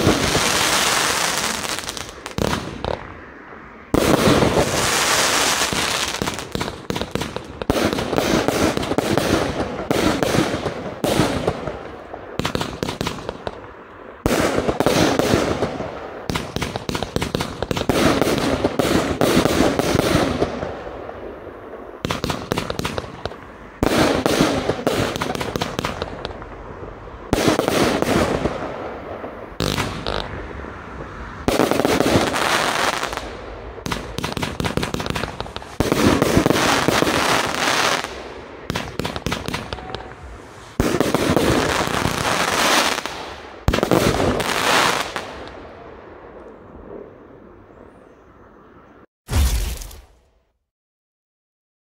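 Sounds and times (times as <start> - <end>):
firework aerial bursts: 0.0 - 13.6, 14.2 - 45.5
firework crackle: 0.0 - 45.6
firework launch thumps: 49.3 - 50.1.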